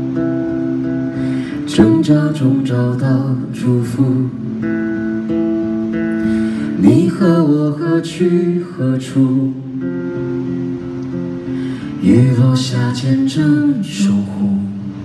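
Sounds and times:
guitar accompaniment: 0.0 - 15.0
woman singing into a microphone: 1.6 - 4.5.

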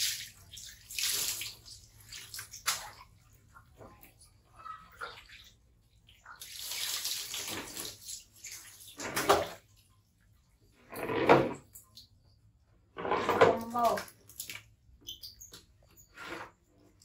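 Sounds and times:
water pouring and splashing: 0.0 - 12.2, 12.9 - 17.0.

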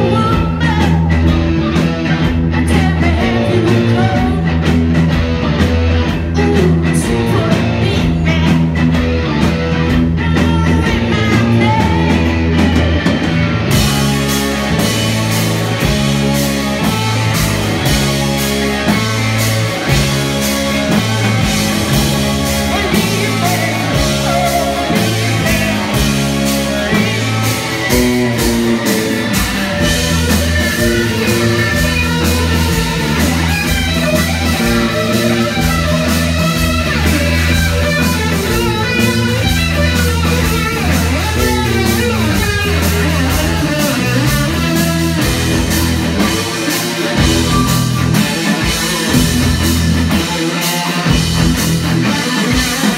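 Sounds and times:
bass guitar: 0.0 - 52.9
drum kit: 0.0 - 52.9
electric guitar: 0.0 - 52.9
keyboard: 0.0 - 52.9.

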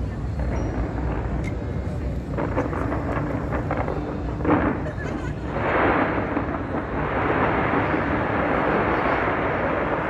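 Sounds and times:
fireworks barrage: 0.0 - 10.0.

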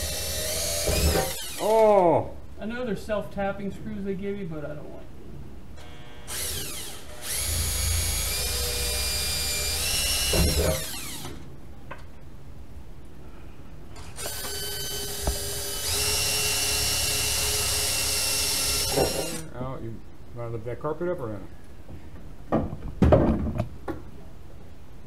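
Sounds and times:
cordless drill whining: 0.0 - 1.7, 5.8 - 11.4, 14.0 - 19.5.

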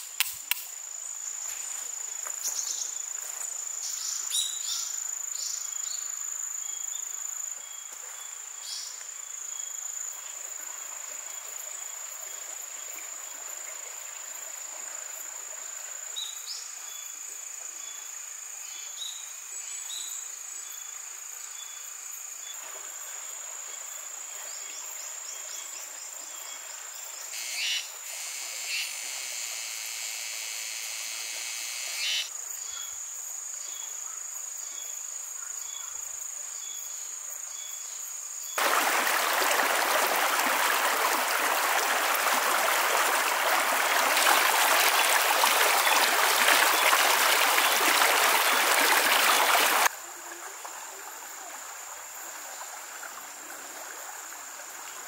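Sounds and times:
faint insect chirps: 0.0 - 55.0
insects droning: 0.0 - 55.0
stream running over rocks: 7.0 - 17.3, 22.6 - 31.9, 38.6 - 55.0
loud insect buzzing call: 27.3 - 32.3.

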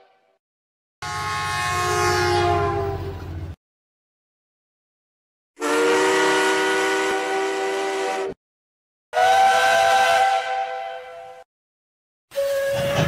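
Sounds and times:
steam whistle blasts: 5.6 - 8.4, 9.2 - 11.5, 12.3 - 13.0.

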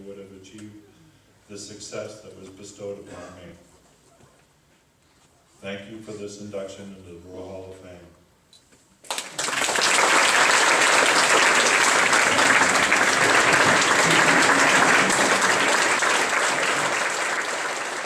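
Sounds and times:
audience applause: 9.1 - 18.0.

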